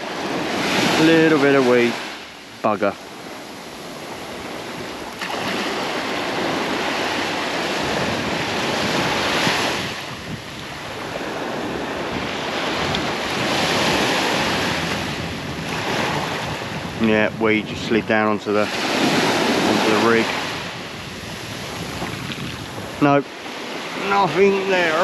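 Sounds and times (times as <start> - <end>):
small waves breaking on beach: 0.0 - 25.0
wind buffeting microphone: 0.0 - 25.0.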